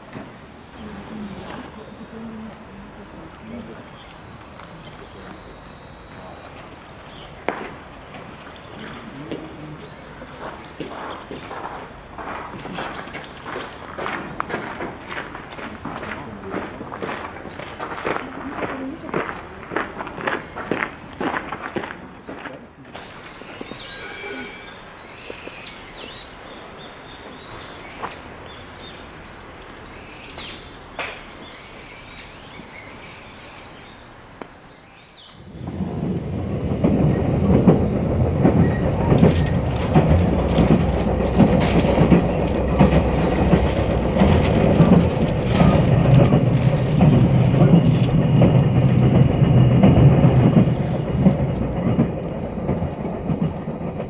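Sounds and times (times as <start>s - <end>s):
quiet outdoor ambience: 0.0s - 54.0s
vehicle rumbling and rattling: 35.4s - 54.0s.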